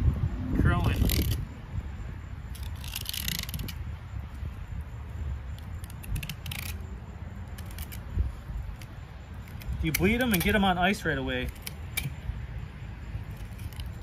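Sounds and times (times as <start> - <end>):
low steady rumble: 0.0 - 14.0
small clicks and crackles: 2.5 - 3.8, 5.5 - 6.9.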